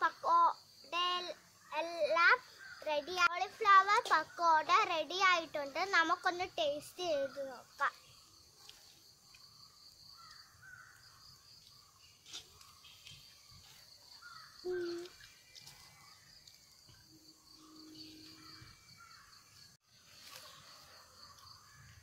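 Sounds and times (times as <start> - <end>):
bird calls: 1.2 - 3.3, 7.2 - 22.0
crows cawing: 10.2 - 11.0, 14.2 - 14.6
high-pitched insect drone: 14.6 - 19.4.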